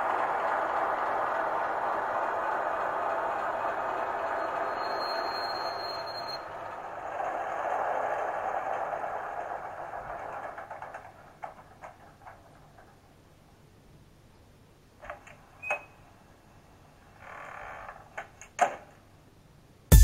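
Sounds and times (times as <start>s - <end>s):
thin high whine: 4.0s - 6.6s.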